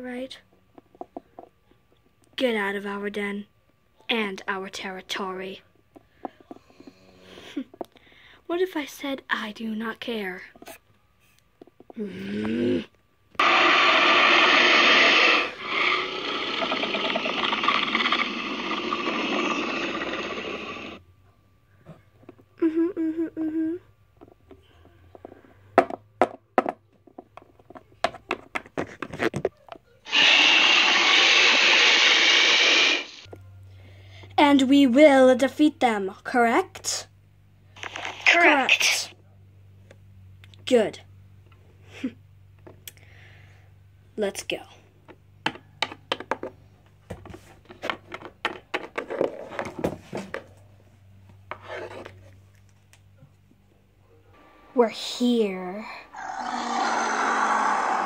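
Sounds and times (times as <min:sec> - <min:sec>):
loud steady hiss: 0:13.4 - 0:21.0, 0:30.1 - 0:33.3
plastic figures knocking on table: 0:25.8 - 0:26.8.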